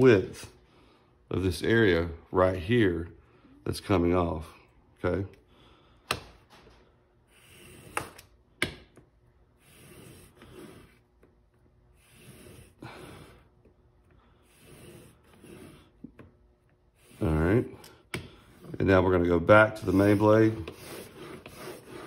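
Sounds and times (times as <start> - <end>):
blade scraping on abrasive sheet: 7.3 - 8.3, 9.6 - 11.1, 11.9 - 13.5, 14.4 - 16.2, 16.9 - 17.6, 19.7 - 22.0.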